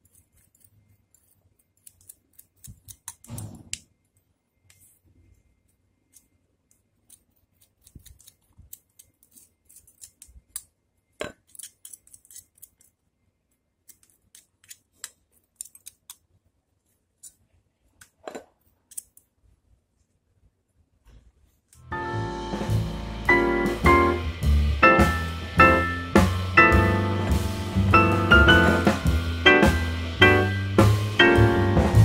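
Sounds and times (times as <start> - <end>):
scissors snipping twigs: 0.0 - 3.4.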